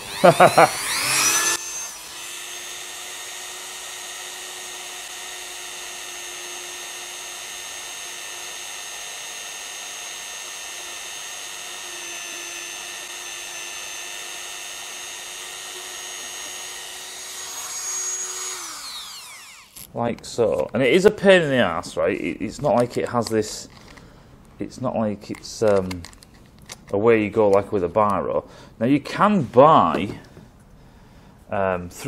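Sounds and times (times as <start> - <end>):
rotary tool whining: 0.0 - 20.0, 22.7 - 24.1.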